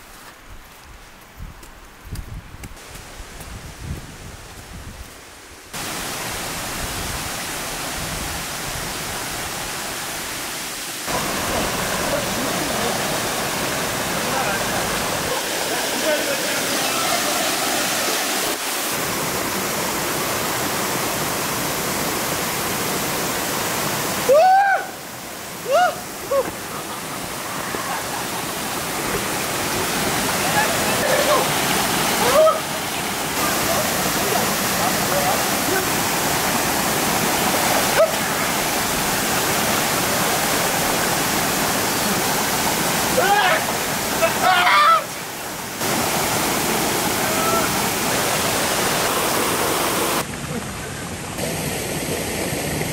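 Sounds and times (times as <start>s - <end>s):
stream over small waterfall: 0.0s - 52.9s
person calling out: 32.2s - 32.7s, 43.2s - 45.1s, 47.2s - 47.9s.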